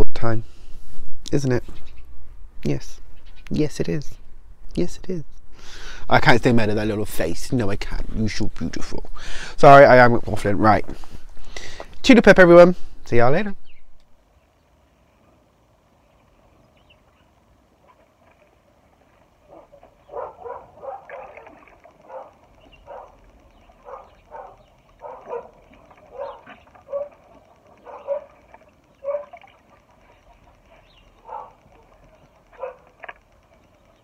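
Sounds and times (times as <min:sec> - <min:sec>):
dog barking: 0:19.5 - 0:23.2, 0:23.8 - 0:27.2, 0:27.8 - 0:28.4, 0:29.0 - 0:29.4, 0:31.2 - 0:33.0.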